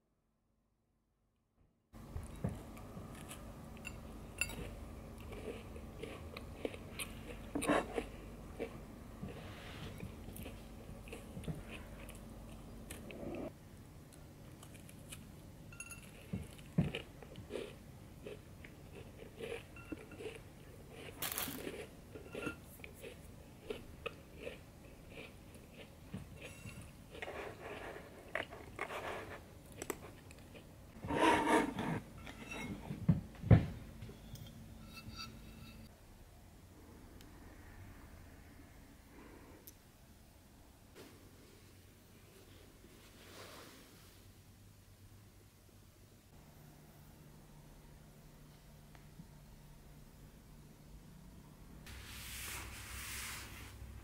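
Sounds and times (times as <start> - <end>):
crunching and chewing cookie: 2.2 - 30.8.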